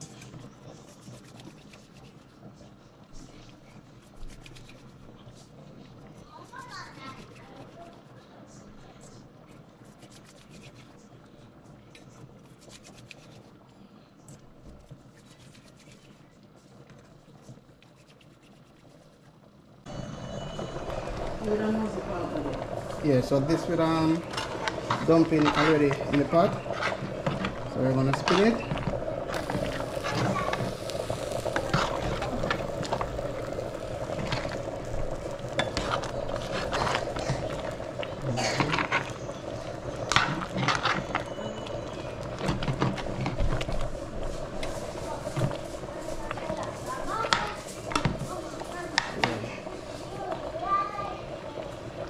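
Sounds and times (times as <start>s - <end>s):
stew simmering and sizzling: 0.0s - 52.0s
metal spoon scraping a pot: 24.2s - 28.8s.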